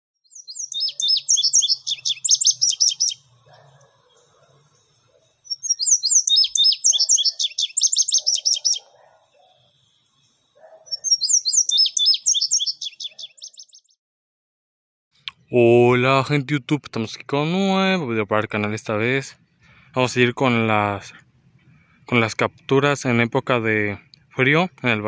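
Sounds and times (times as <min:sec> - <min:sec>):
songbird twittering: 0:00.2 - 0:14.0.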